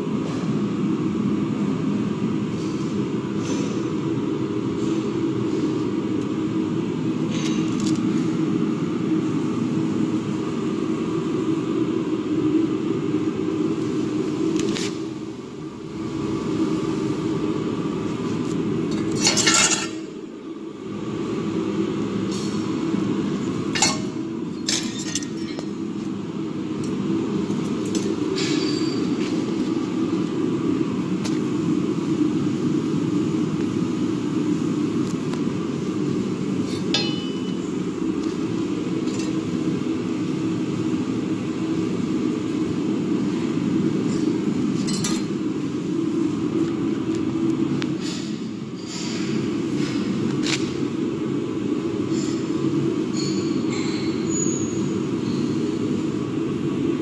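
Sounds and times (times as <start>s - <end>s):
iron pieces clinking and knocking: 23.8s - 25.8s, 36.9s - 37.6s.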